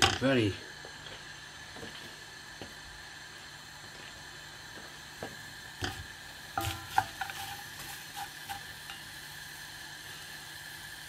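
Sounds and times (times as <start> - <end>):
food sizzling: 0.0 - 11.0
spoon scraping frying pan: 6.6 - 9.2.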